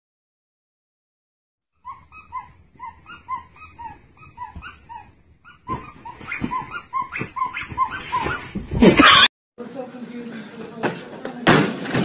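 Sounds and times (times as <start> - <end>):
puppy yipping and whimpering: 1.8 - 9.3.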